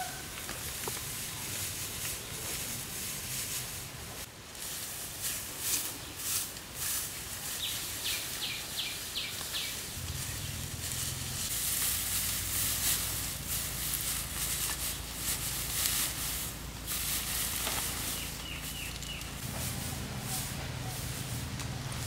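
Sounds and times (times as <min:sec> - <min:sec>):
dry straw rustling and crackling: 0:00.0 - 0:22.0
bird chirping: 0:07.6 - 0:10.7, 0:17.9 - 0:19.4.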